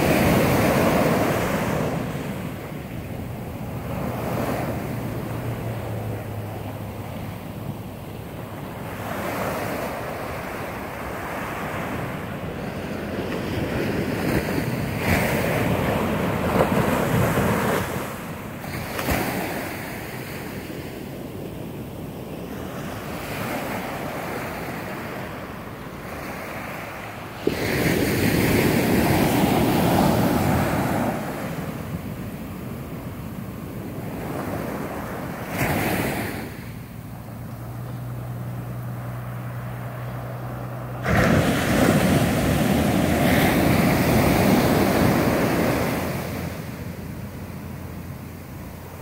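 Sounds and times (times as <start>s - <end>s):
ocean surf breaking on beach: 0.0s - 49.0s.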